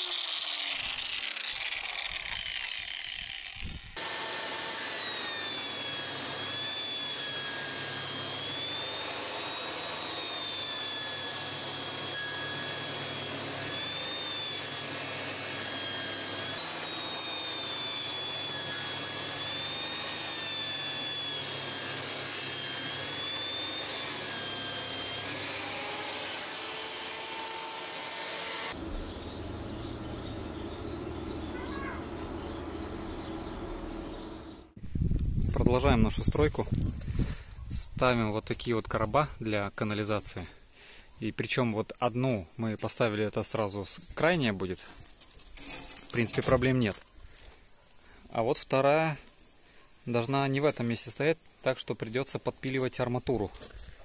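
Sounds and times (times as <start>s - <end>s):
power tool motor whining: 0.0s - 34.9s.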